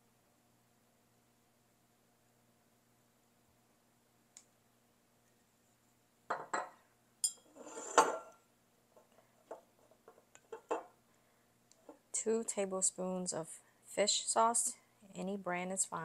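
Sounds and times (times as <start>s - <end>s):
bottles set down on stone counter: 6.3s - 6.8s, 9.5s - 11.0s
metal spoon clinking on steel bowl: 6.3s - 8.4s.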